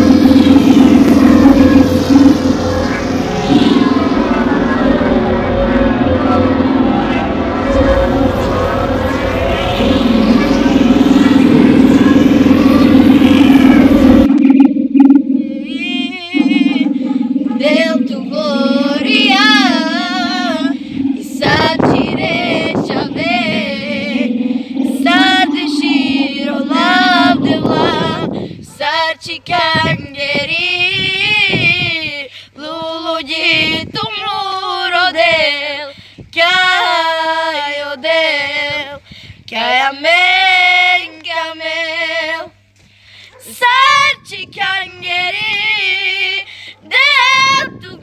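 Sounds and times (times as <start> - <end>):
low drone: 0.0 - 28.6
women singing with vibrato: 15.4 - 42.6, 43.4 - 48.0.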